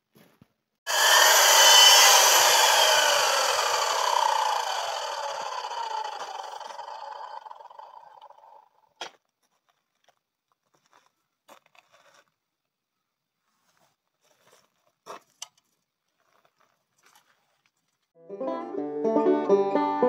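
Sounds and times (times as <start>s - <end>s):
timber knocking and scraping on saw: 0.9s - 8.4s.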